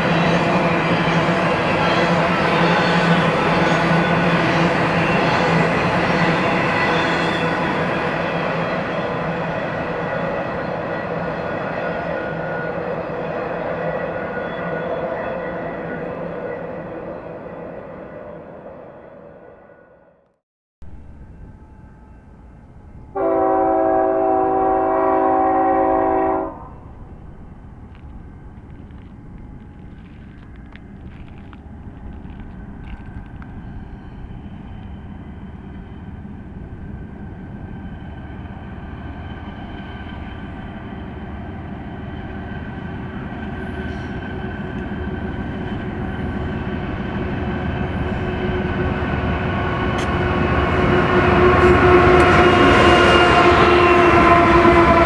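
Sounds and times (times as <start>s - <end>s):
train engine and wheel rumble: 0.0s - 55.0s
locomotive air horn blast: 23.1s - 26.9s, 50.0s - 55.0s.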